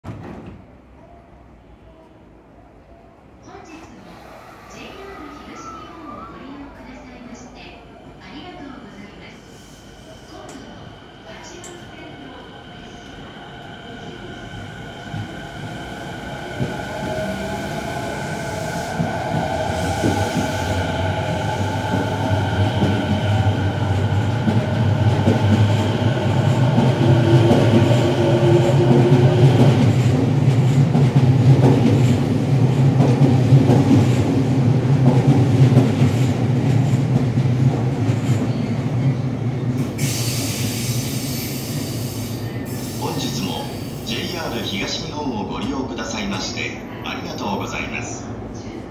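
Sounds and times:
wheels rumbling on rail: 0:09.2 - 0:43.0.

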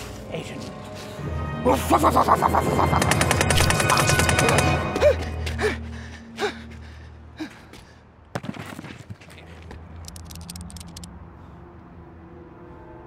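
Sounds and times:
low music drone: 0:00.0 - 0:07.5, 0:10.8 - 0:13.0
clattering fall on a rooftop: 0:08.3 - 0:09.4
small metallic clicks: 0:10.0 - 0:11.1.

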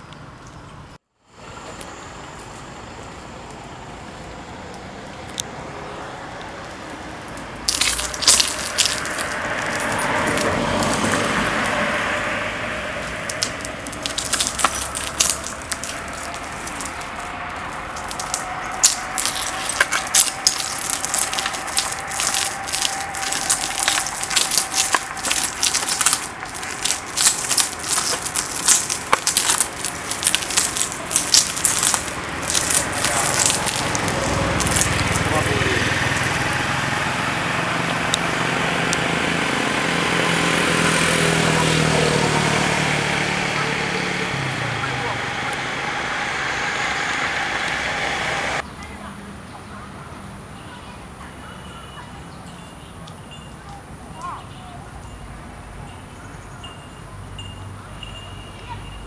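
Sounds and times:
wheels crunching broken glass: 0:06.6 - 0:36.8.

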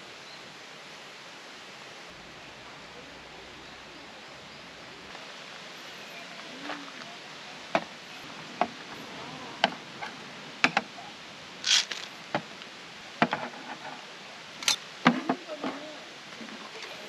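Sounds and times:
steady faint hiss: 0:00.0 - 0:17.0
short hiss: 0:11.6 - 0:12.3.

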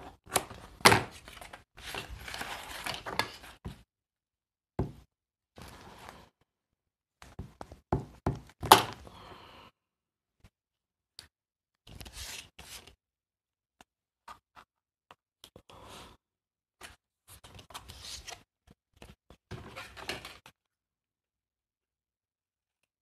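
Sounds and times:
paper rustling and rubbing: 0:01.2 - 0:03.6, 0:11.9 - 0:13.0.

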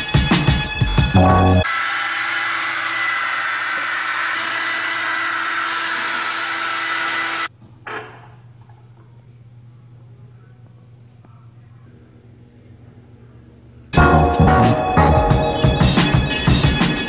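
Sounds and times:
hair dryer blowing: 0:01.6 - 0:07.5.

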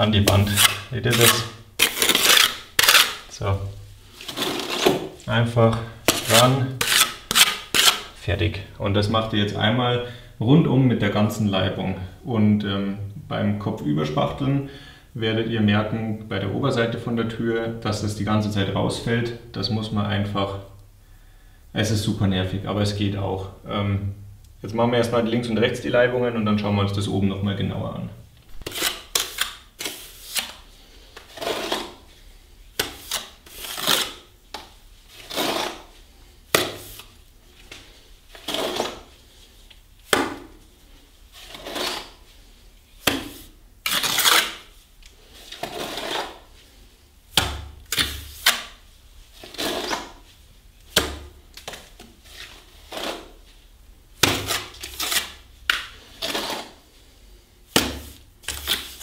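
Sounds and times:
trowel scraping plaster: 0:00.2 - 0:03.3, 0:04.2 - 0:05.2, 0:06.1 - 0:08.2, 0:28.6 - 0:30.6, 0:31.2 - 0:32.1, 0:32.8 - 0:34.3, 0:35.1 - 0:36.0, 0:38.3 - 0:39.1, 0:41.3 - 0:42.3, 0:43.1 - 0:44.7, 0:45.4 - 0:46.5, 0:49.4 - 0:50.2, 0:52.3 - 0:53.4, 0:54.3 - 0:56.8, 0:57.8 - 0:59.0
dull slaps of plaster: 0:36.5 - 0:37.1, 0:40.1 - 0:40.6, 0:43.0 - 0:43.4, 0:54.2 - 0:56.7, 0:57.7 - 0:59.0.

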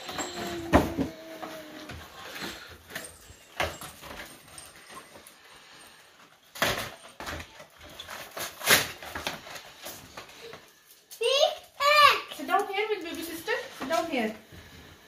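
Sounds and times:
cardboard packaging rustling: 0:00.0 - 0:11.1.

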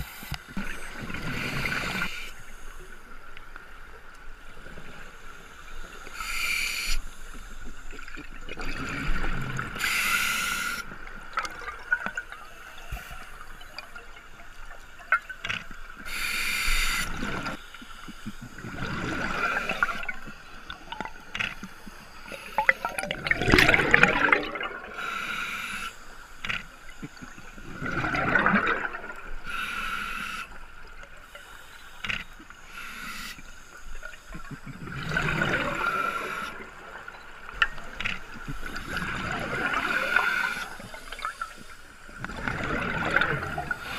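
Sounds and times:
hissing regulator breaths: 0:06.0 - 0:07.8, 0:09.8 - 0:10.8, 0:16.0 - 0:18.4, 0:25.0 - 0:26.2, 0:29.4 - 0:30.6, 0:35.8 - 0:36.6
gurgling exhaust bubbles: 0:22.6 - 0:24.9.

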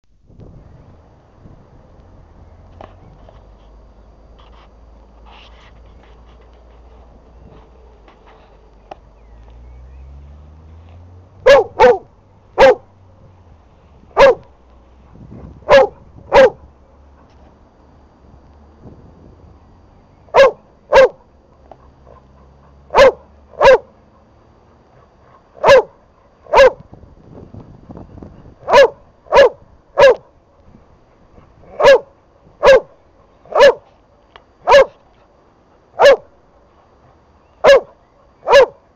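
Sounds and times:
dog barking: 0:11.4 - 0:12.9, 0:14.2 - 0:14.5, 0:15.7 - 0:16.7, 0:20.3 - 0:21.2, 0:21.8 - 0:23.9, 0:25.6 - 0:26.8, 0:28.6 - 0:30.3, 0:31.7 - 0:33.9, 0:34.6 - 0:35.0, 0:36.0 - 0:36.3, 0:37.6 - 0:38.8.

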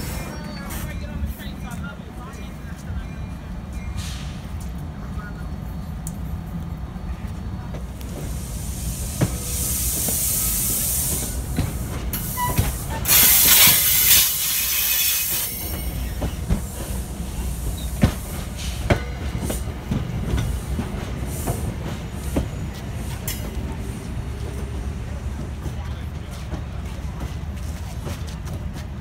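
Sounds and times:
train rolling rumble: 0:00.0 - 0:29.0
loud hiss: 0:08.1 - 0:15.6.

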